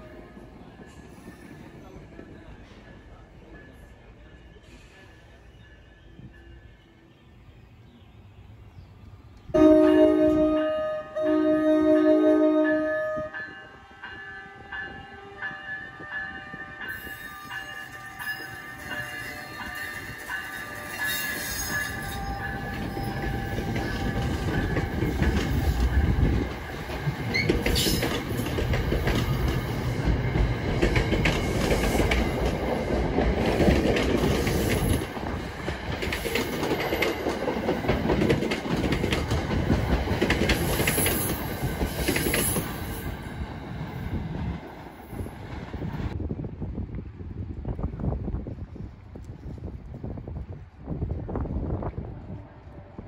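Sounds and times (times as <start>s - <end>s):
train wheels rumbling: 9.1s - 46.2s
wheels clicking over rail joints: 21.0s - 42.7s.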